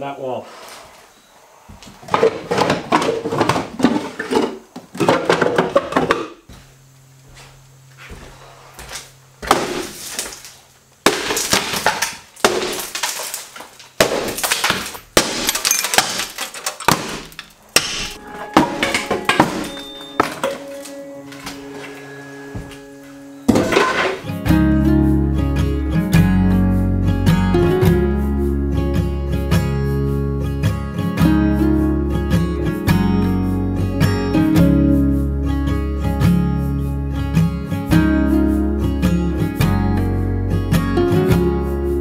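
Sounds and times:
wooden boards cracking and crashing: 2.1s - 6.4s, 9.4s - 21.5s, 23.5s - 24.3s
debris falling: 9.4s - 22.0s, 23.5s - 24.3s.

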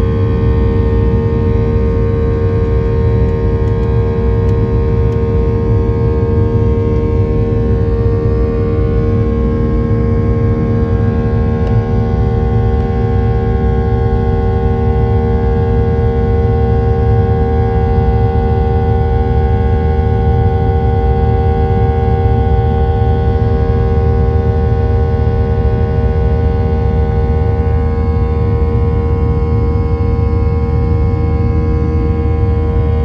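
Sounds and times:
jet engines droning in cabin: 0.0s - 33.0s.

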